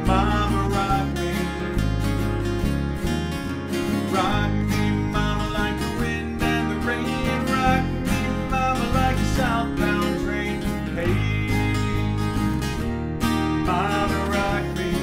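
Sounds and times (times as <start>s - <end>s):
man singing: 0.0s - 1.9s, 3.8s - 12.3s, 13.5s - 15.0s
acoustic guitars strumming: 0.0s - 15.0s.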